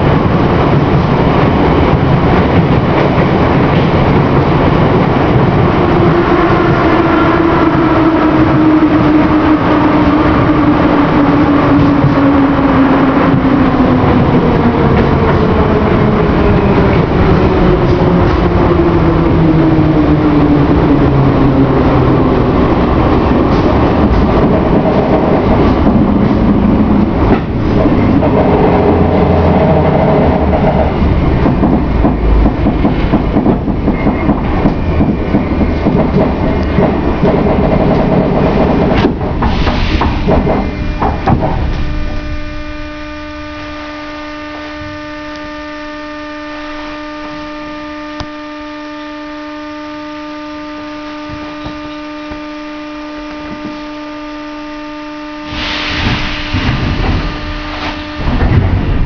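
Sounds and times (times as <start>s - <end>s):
train wheels rumbling on rails: 0.0s - 47.6s, 50.9s - 59.0s
train whine: 0.0s - 59.0s
train brake clanks: 31.4s - 42.2s, 55.4s - 59.0s.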